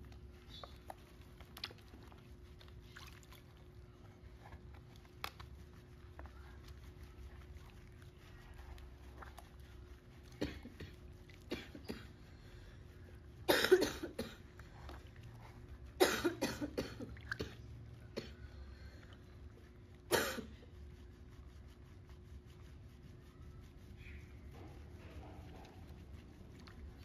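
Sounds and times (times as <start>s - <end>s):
person coughing: 10.4s - 12.2s, 13.5s - 14.4s, 16.0s - 17.6s, 20.1s - 20.6s.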